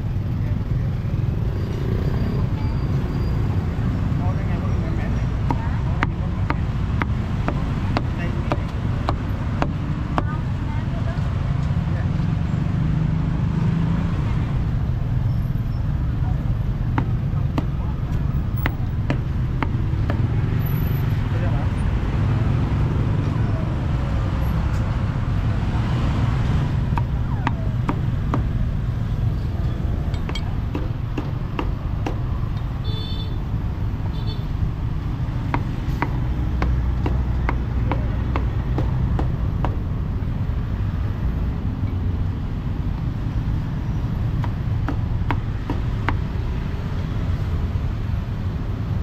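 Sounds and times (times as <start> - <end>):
street traffic rumble: 0.0 - 49.0
cleaver chopping on wooden block: 5.4 - 10.3, 16.9 - 17.8, 18.6 - 20.3, 26.9 - 28.6, 30.2 - 32.3, 35.5 - 39.8, 44.3 - 46.4.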